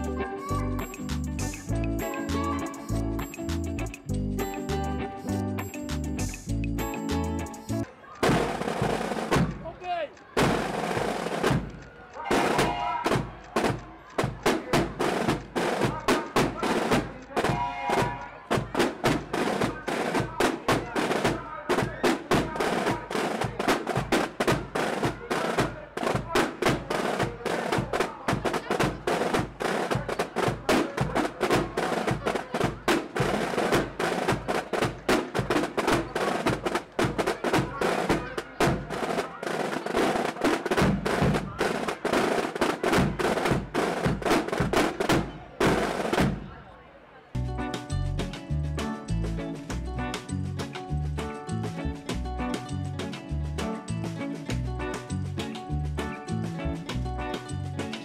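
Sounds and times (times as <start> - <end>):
bass drum: 0.8 - 4.9, 8.2 - 9.7, 40.7 - 41.8, 47.4 - 57.8
snare drums playing march: 5.8 - 46.4.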